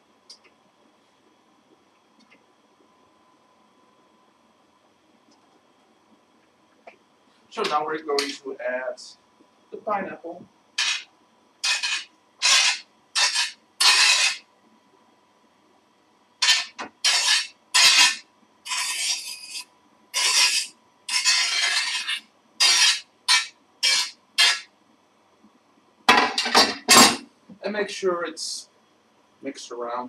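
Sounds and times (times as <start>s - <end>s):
spoon scraping a bowl: 16.5s - 19.6s, 20.2s - 24.6s.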